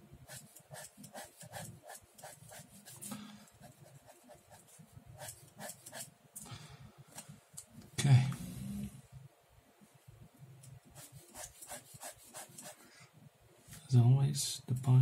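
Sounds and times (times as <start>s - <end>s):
pen scratching on paper: 0.2s - 6.1s, 10.9s - 12.8s.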